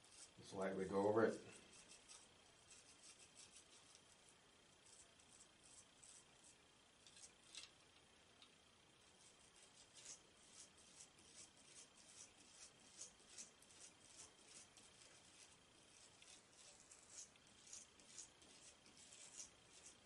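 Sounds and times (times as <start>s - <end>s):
toothbrush scrubbing circuit board: 1.5s - 4.1s, 4.8s - 7.4s, 9.1s - 20.0s.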